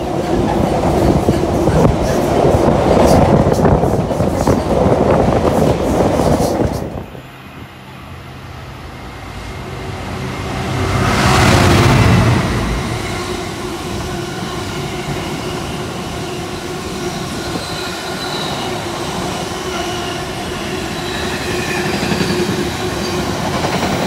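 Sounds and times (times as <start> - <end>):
diesel locomotive engine hum: 0.0 - 24.0
freight train rushing past: 0.0 - 24.0.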